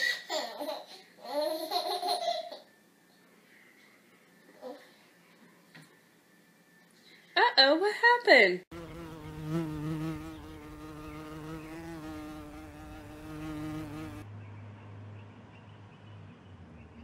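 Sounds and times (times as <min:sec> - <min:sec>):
flying insect buzzing: 0:08.7 - 0:14.2.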